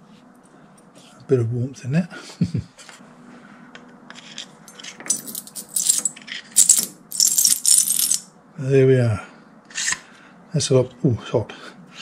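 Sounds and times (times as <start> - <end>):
metal pieces clinking: 4.2 - 8.3.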